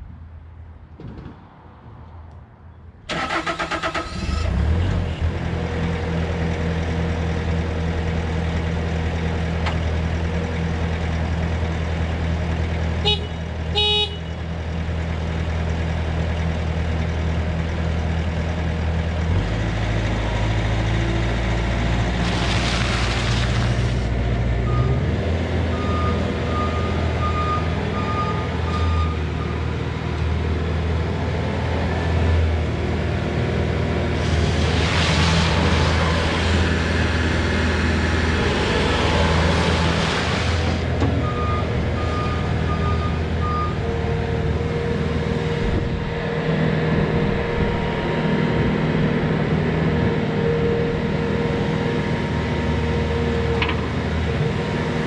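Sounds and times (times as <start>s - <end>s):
diesel engine starting and running: 3.0s - 55.0s
horn-like beep: 13.0s - 14.3s.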